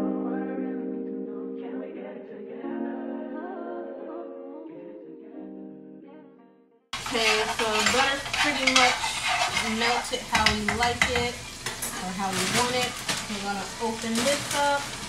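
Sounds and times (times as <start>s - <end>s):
food sizzling in a frying pan: 7.0s - 15.0s
utensil scraping a pan: 7.0s - 15.0s.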